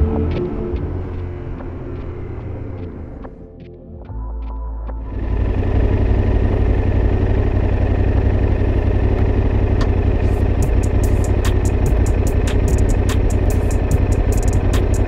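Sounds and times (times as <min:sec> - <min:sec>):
motorcycle engine rumbling: 0:00.0 - 0:03.7, 0:05.0 - 0:15.0
sharp ticks: 0:09.1 - 0:15.0.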